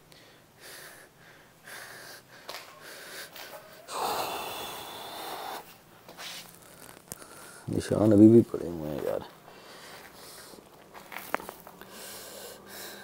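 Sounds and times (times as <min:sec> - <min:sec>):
man breathing heavily: 0:00.0 - 0:07.8, 0:09.4 - 0:10.8, 0:11.8 - 0:13.0.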